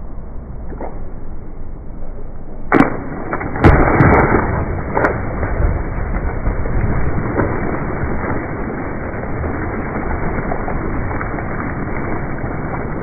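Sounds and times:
body slapping water: 0:02.7 - 0:12.8
diving splash: 0:02.7 - 0:13.0
water churning and spraying: 0:02.8 - 0:13.0.

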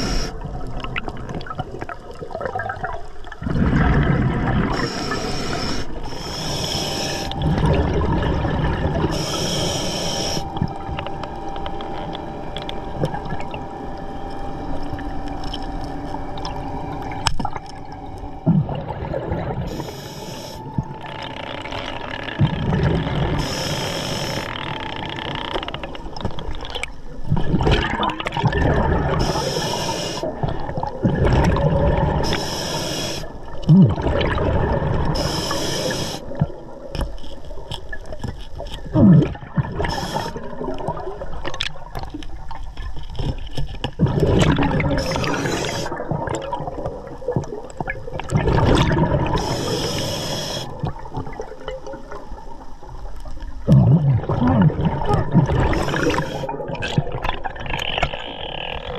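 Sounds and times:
hissing regulator inhales: 0:00.0 - 0:00.4, 0:04.7 - 0:07.4, 0:09.0 - 0:10.6, 0:19.7 - 0:20.7, 0:23.4 - 0:24.7, 0:29.2 - 0:30.3, 0:32.2 - 0:33.4, 0:35.1 - 0:36.4, 0:39.8 - 0:40.5, 0:45.0 - 0:46.0, 0:49.4 - 0:50.8, 0:55.7 - 0:56.5
bubbling exhaled air: 0:00.0 - 0:10.5, 0:27.3 - 0:36.6, 0:38.8 - 0:41.9, 0:44.0 - 0:52.2, 0:53.6 - 0:58.9
steady underwater wash: 0:00.0 - 0:58.9.

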